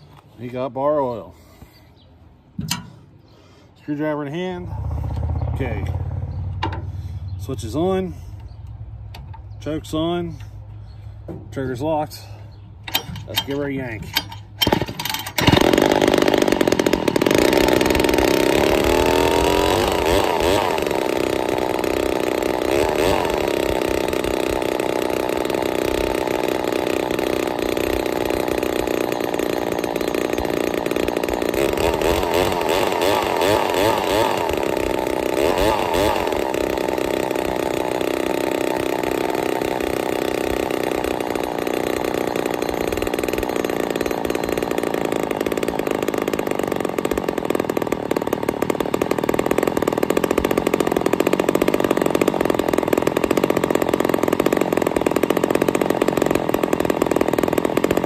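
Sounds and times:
chainsaw revving: 14.6s - 58.0s.

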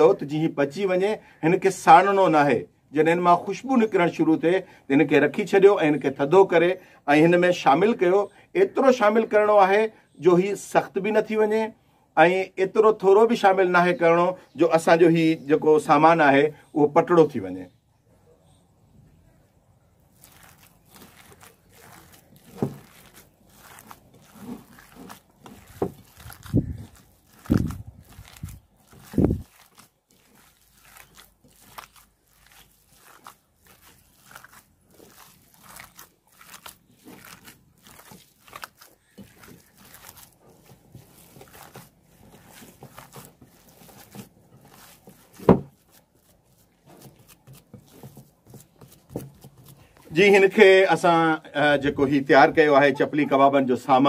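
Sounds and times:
hand squishing wet mixture: 19.3s - 54.0s.

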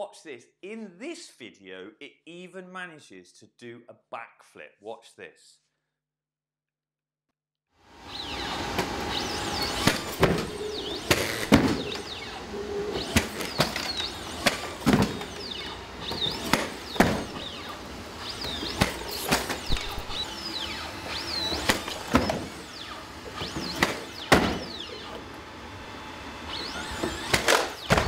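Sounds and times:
short squeaks: 8.1s - 25.2s
robot feet thudding on boxes: 9.8s - 12.1s, 13.0s - 17.6s, 18.4s - 20.2s, 23.5s - 24.8s, 27.2s - 28.0s.

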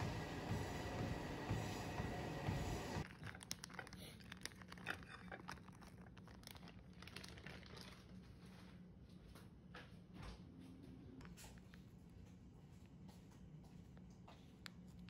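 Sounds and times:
music: 0.0s - 3.0s
crinkling and clicking handling noises: 3.0s - 9.9s.

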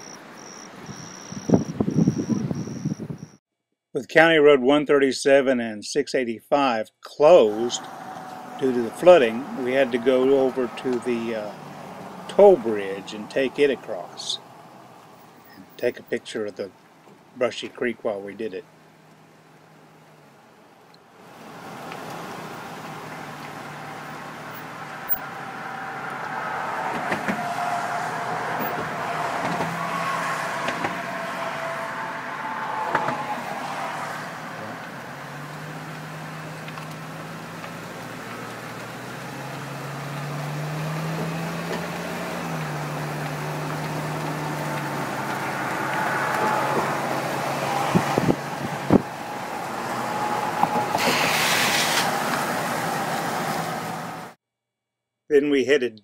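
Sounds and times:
car tyre and engine noise: 0.0s - 3.4s, 7.2s - 54.4s
rush of hiss: 50.9s - 52.2s.

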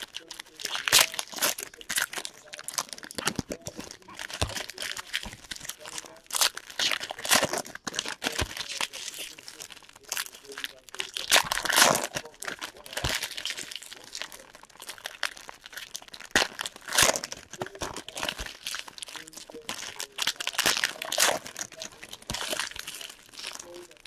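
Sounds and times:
foil wrappers crinkling and tearing: 0.0s - 24.0s.

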